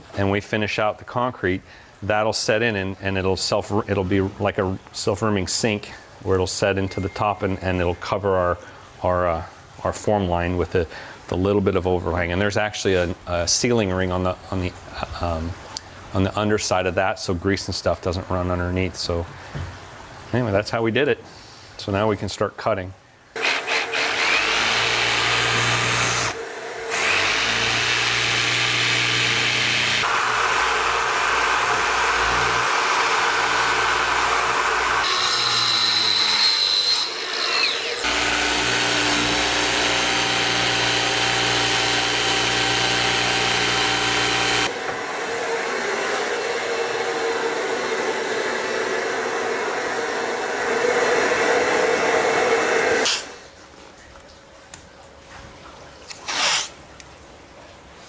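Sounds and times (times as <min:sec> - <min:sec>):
shop vacuum running: 0:23.4 - 0:35.5, 0:37.9 - 0:53.3
jigsaw cutting board: 0:23.4 - 0:45.0.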